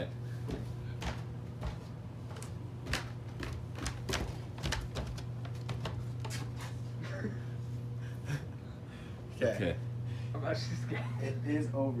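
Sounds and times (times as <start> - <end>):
steady low hum: 0.0 - 12.0
footsteps on wooden stairs: 0.3 - 6.8.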